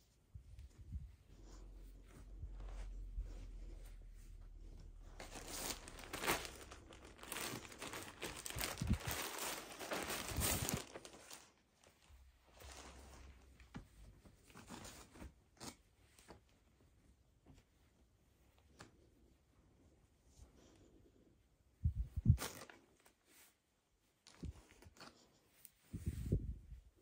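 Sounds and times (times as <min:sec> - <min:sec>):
fabric rustling: 0:00.0 - 0:20.7, 0:21.8 - 0:27.0
plastic packaging tearing and crinkling: 0:05.2 - 0:11.5.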